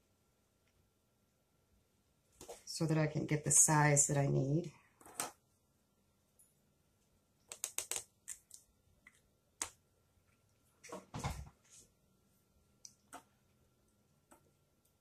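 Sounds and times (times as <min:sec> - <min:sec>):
plastic clicks and taps: 0:07.5 - 0:08.5.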